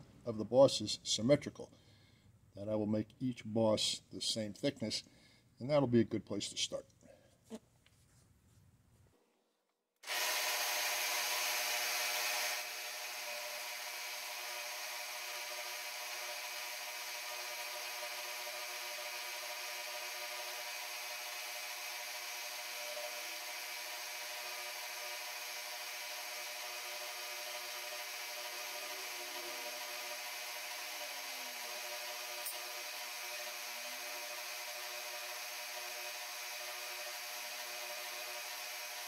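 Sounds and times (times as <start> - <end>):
milling machine whine: 10.1 - 39.0.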